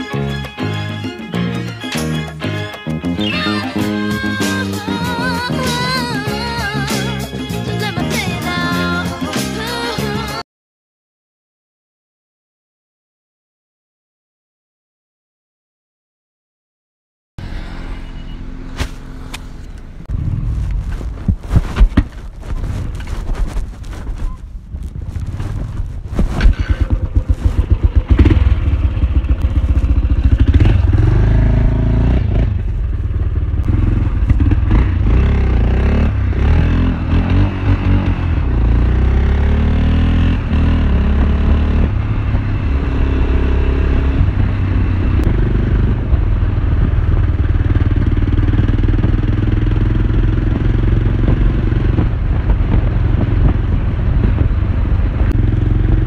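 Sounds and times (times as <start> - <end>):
motorcycle engine: 17.4 - 56.0.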